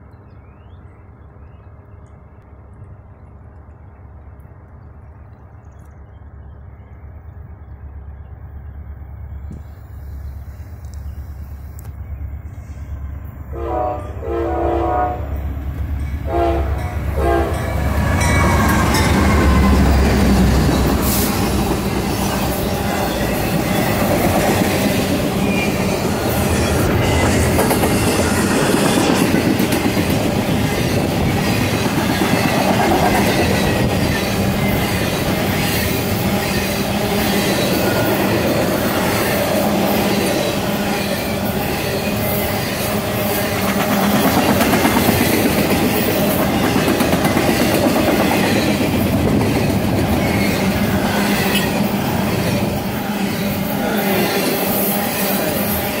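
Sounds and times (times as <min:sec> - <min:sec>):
train wheels rumbling on rails: 0:05.9 - 0:56.0
clickety-clack of rails: 0:15.5 - 0:56.0.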